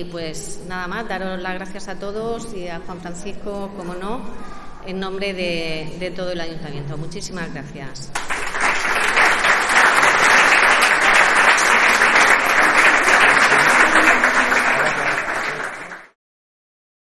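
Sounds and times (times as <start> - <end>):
audience applauding: 8.2 - 16.2.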